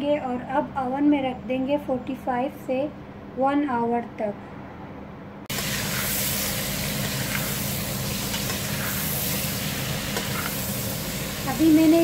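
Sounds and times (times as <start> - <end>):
vegetables sizzling in oil: 5.5 - 12.0.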